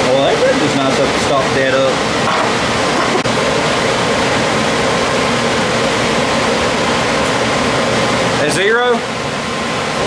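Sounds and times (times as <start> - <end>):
fan blowing air: 0.0 - 10.0.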